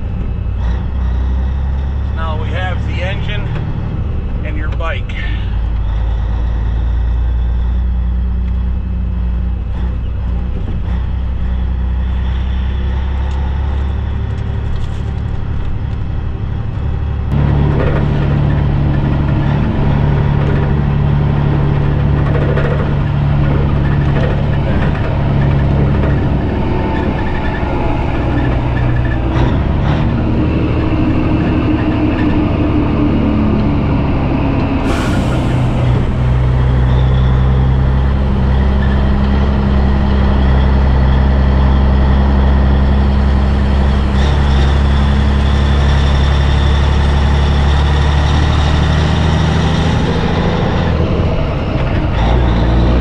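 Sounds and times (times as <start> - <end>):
truck diesel engine running: 0.0 - 53.0.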